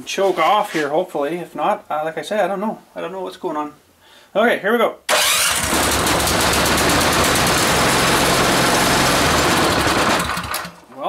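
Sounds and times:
small engine running without muffler: 5.1 - 10.8.

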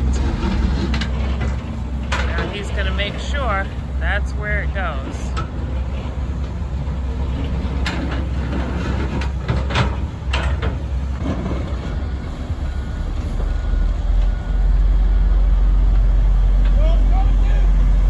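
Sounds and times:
excavator bucket scraping gravel: 0.0 - 13.5
diesel engines rumbling: 0.0 - 18.0.

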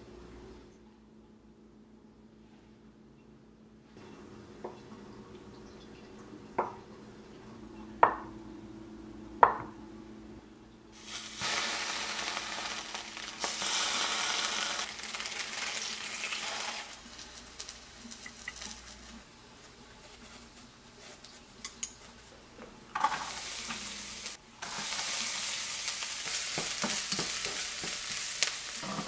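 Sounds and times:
tofu sizzling in frying pan: 11.0 - 19.2, 23.0 - 29.0.

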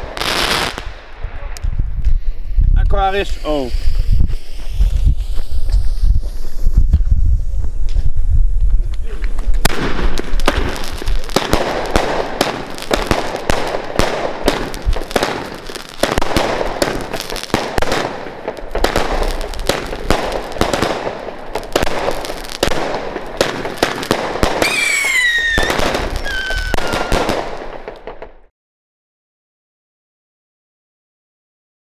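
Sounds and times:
fireworks launching and bursting: 0.0 - 28.5
firework whistles falling in pitch: 24.6 - 27.4.

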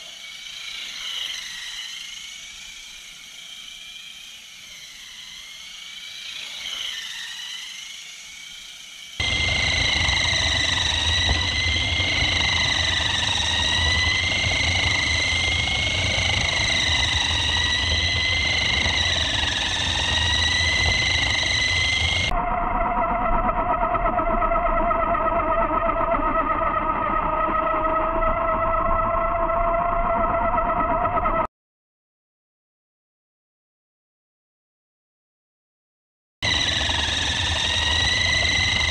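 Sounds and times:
electric motor whine: 0.0 - 31.5, 36.4 - 38.9
low rumble: 9.2 - 24.4.

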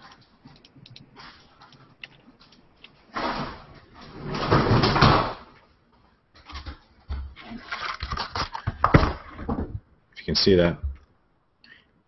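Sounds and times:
sliding rustling noises: 0.0 - 9.4.

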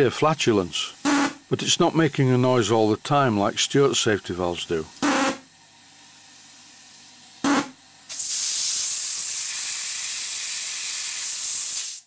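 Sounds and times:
loud steam hiss: 7.6 - 12.0.

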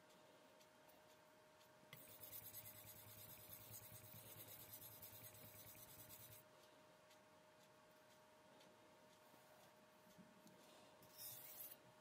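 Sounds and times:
knife scraping on whetstone: 11.1 - 11.8.

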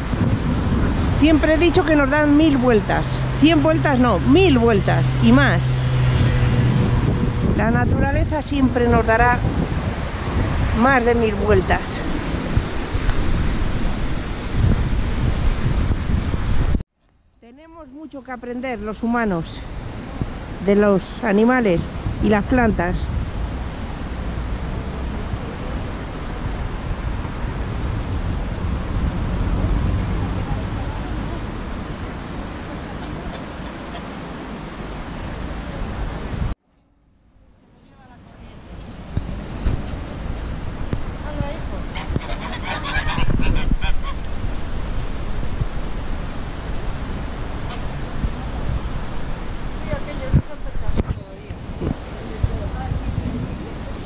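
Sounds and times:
river rushing: 0.0 - 16.8, 18.0 - 36.6, 37.5 - 54.0
water: 0.0 - 16.8, 17.9 - 36.6, 37.5 - 54.0
wind: 0.0 - 54.0
geese honking: 32.9 - 34.2, 41.8 - 44.3, 47.6 - 47.9.

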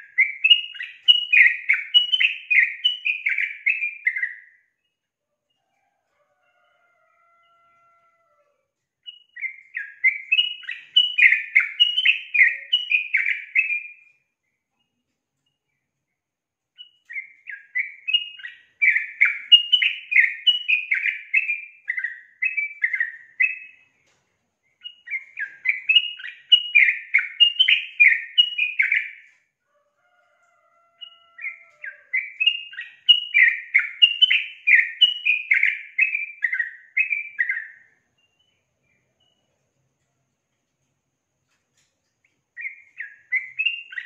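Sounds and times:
bird chattering song: 0.0 - 5.0, 9.0 - 14.1, 16.8 - 24.0, 24.7 - 29.4, 31.0 - 39.5, 42.3 - 44.0.

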